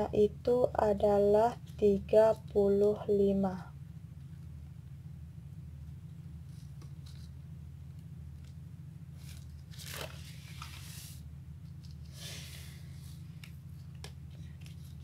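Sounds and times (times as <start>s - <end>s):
low hum: 0.0s - 15.0s
paper rustling: 9.2s - 11.2s, 13.4s - 15.0s.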